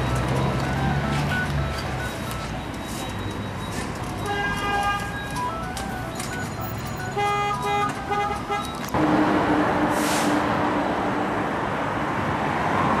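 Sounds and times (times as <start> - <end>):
short electronic beeps: 0.0 - 7.9
street traffic rumble: 0.0 - 13.0
brief hiss: 10.0 - 10.4.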